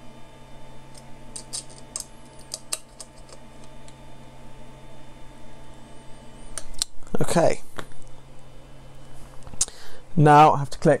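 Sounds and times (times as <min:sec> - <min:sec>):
steady low hum: 0:00.0 - 0:11.0
allen key clicking on screws: 0:01.4 - 0:03.4.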